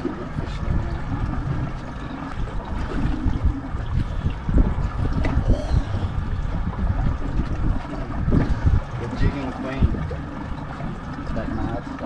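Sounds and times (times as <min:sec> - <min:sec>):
water slapping metal hull: 0:00.0 - 0:12.0
wind buffeting microphone: 0:00.0 - 0:12.0.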